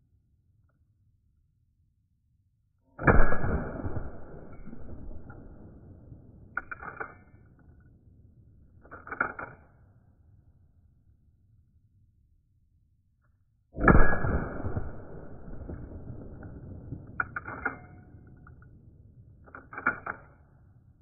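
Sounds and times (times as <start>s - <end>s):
rifle shot echoing: 3.0s - 6.8s, 13.8s - 18.3s
lever action metallic clicks: 6.6s - 7.3s, 19.5s - 20.4s.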